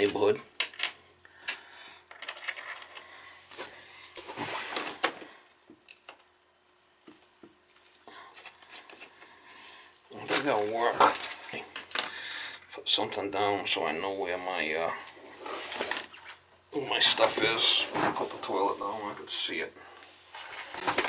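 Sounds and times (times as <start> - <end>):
man talking: 0.0 - 0.5, 10.1 - 11.7, 12.7 - 15.1, 16.7 - 19.8.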